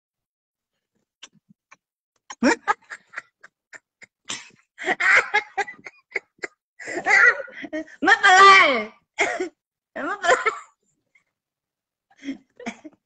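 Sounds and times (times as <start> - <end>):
laughter: 2.3 - 7.9, 12.2 - 13.0.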